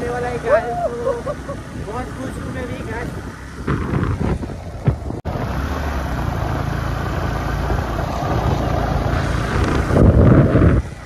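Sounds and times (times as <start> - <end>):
wind and road noise: 0.0 - 11.0.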